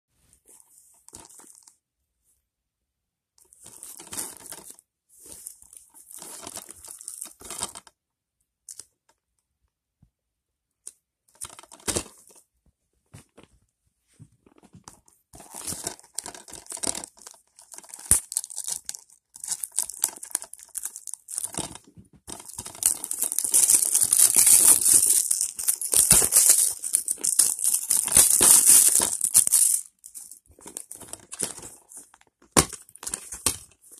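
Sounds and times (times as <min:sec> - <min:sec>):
plastic shrink-wrap crinkling: 0:15.4 - 0:33.9.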